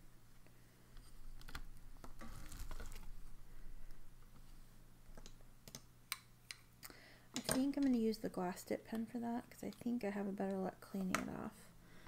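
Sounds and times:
faint steady hum: 0:00.0 - 0:12.0
clicks and rustling of small objects: 0:00.9 - 0:03.2, 0:07.3 - 0:08.1.

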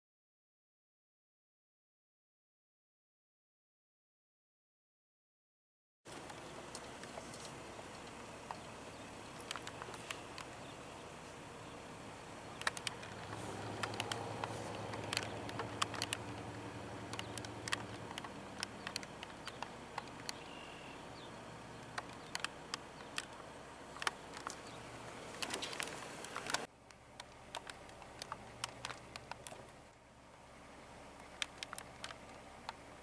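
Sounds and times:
sharp clicks: 0:06.1 - 0:10.8, 0:12.4 - 0:30.0, 0:31.2 - 0:32.9
passing car engine hum: 0:06.1 - 0:33.0.

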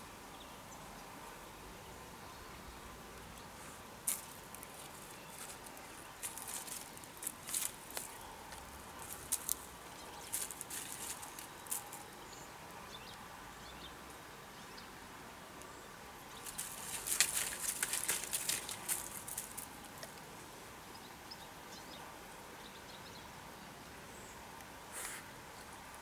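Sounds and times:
dry leaves crackling under dog: 0:04.0 - 0:12.2, 0:16.4 - 0:20.0.

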